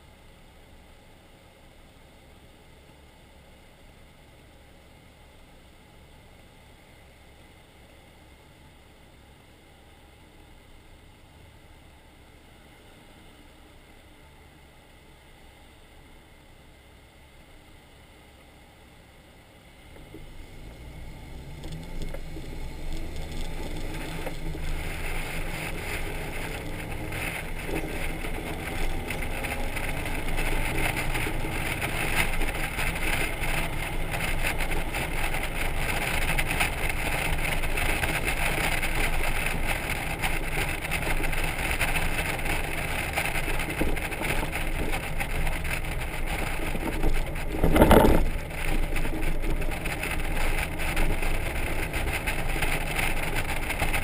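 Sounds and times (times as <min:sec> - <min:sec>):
motorcycle road noise: 0:08.2 - 0:54.0
wind noise: 0:20.0 - 0:54.0.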